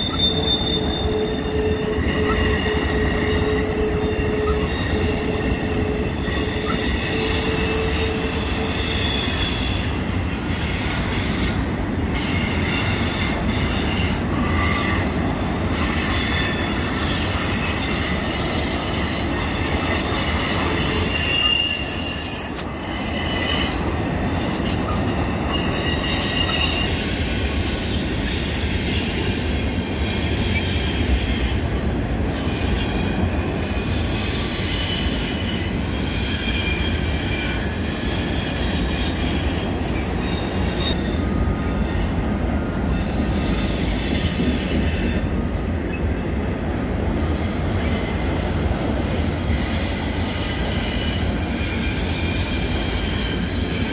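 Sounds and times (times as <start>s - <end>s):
high-pitched wheel squeals: 0.0s - 10.0s, 12.2s - 42.1s
freight train wheels on rails: 0.0s - 53.9s.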